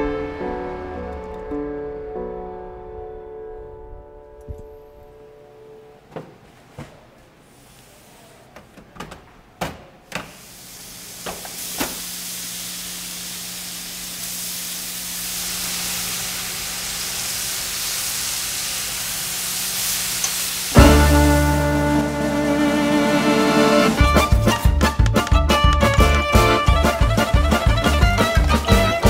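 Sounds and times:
bacon sizzling on a griddle: 10.6 - 21.2
loud string music: 20.8 - 29.0.

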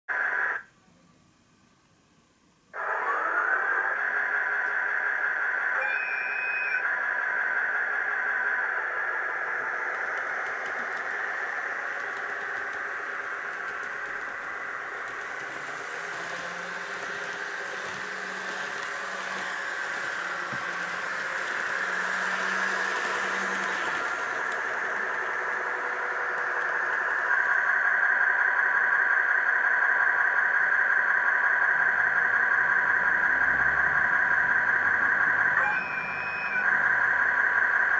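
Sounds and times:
model train motor whine: 2.8 - 37.9
wheels rattling on track: 9.4 - 27.7.

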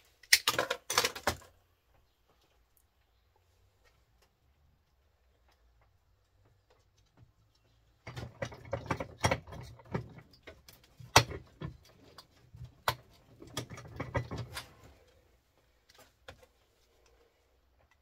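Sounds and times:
metal parts and tools clattering: 13.0 - 14.9.

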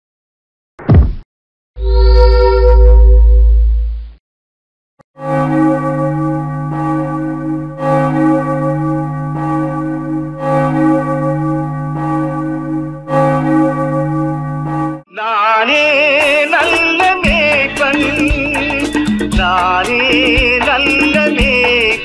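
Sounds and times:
church bells tolling: 5.3 - 15.0.

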